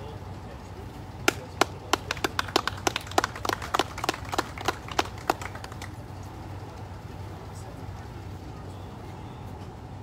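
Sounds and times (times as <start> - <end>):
people applauding: 1.2 - 6.1.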